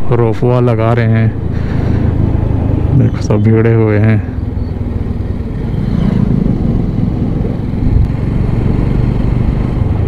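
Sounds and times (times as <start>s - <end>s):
road rumble: 0.0s - 10.0s
motorcycle engine running: 4.3s - 10.0s
wind on microphone: 4.4s - 10.0s.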